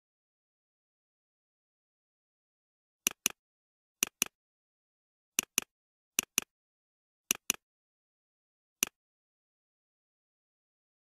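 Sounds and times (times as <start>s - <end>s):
computer mouse double-clicking: 3.0s - 3.4s, 4.0s - 4.4s, 5.4s - 6.5s, 7.3s - 7.6s, 8.8s - 9.0s.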